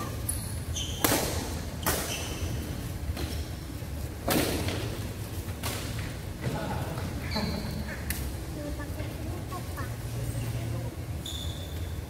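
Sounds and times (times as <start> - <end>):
rackets hitting shuttlecock: 0.3 - 2.3.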